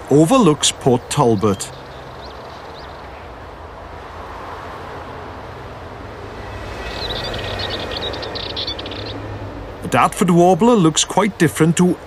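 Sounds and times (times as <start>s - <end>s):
bird chattering song: 0.0s - 3.3s, 6.8s - 11.0s
traffic rumble: 0.0s - 12.0s.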